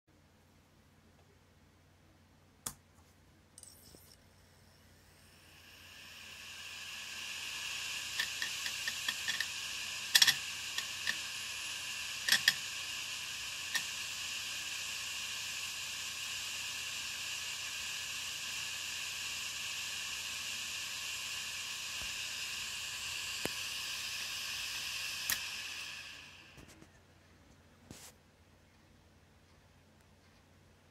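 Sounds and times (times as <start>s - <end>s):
hard drive platter whirring: 4.8s - 26.9s.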